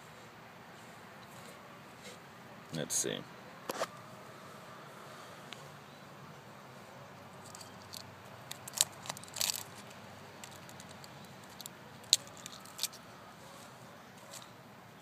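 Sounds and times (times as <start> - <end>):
eggshell cracking and crinkling: 7.5 - 13.0.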